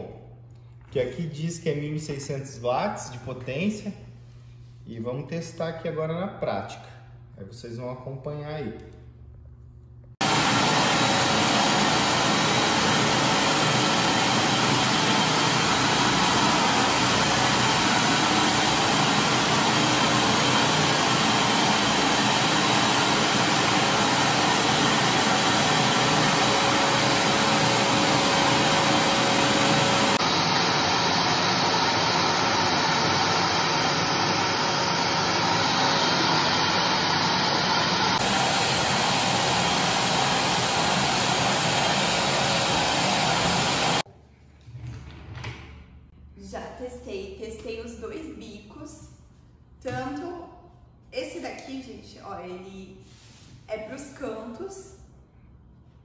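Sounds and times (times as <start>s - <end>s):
wet and dry vacuum cleaner running: 10.2s - 44.1s.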